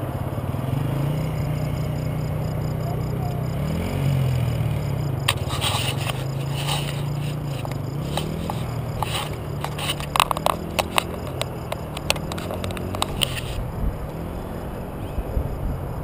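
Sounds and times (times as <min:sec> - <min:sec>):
distant dirt bike engine: 0:00.0 - 0:15.7
wind buffeting microphone: 0:05.0 - 0:16.0
clicks and scrapes on camera housing: 0:05.3 - 0:13.6.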